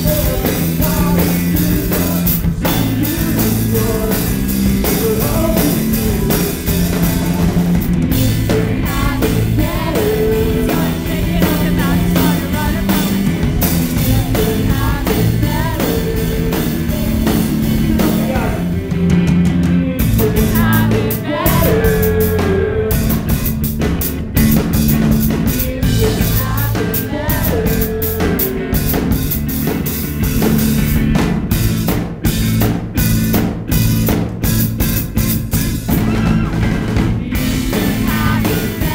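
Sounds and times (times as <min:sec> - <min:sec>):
person singing: 0:00.0 - 0:18.8, 0:20.0 - 0:23.2, 0:25.4 - 0:29.0, 0:36.0 - 0:38.9
drum kit: 0:00.0 - 0:38.9
electric guitar: 0:00.0 - 0:38.9.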